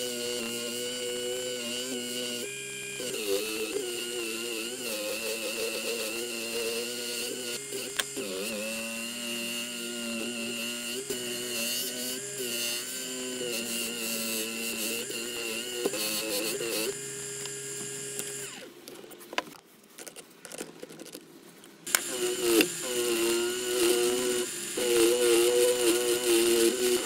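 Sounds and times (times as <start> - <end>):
polishing motor whirring: 0.0 - 18.8, 21.9 - 27.0.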